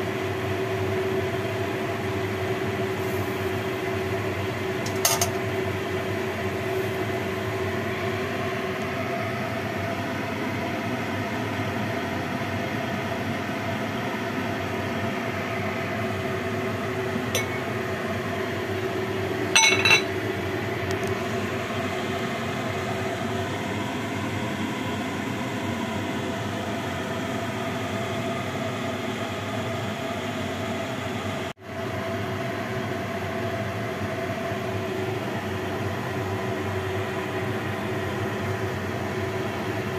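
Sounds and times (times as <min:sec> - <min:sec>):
steady mechanical hum: 0:00.0 - 0:39.9
glass lid clinking on pot: 0:04.9 - 0:05.4, 0:17.3 - 0:17.7, 0:19.6 - 0:20.2.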